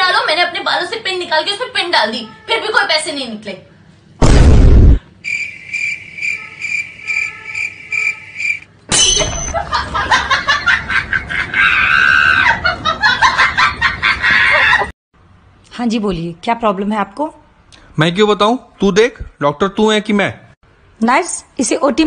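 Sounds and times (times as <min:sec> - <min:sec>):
short loud hit: 0:04.2 - 0:05.0
crickets chirping sound effect: 0:05.2 - 0:08.7.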